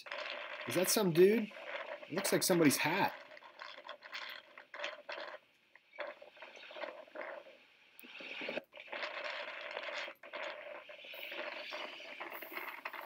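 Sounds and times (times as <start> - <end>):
lava splashing and crackling: 0.0 - 13.0.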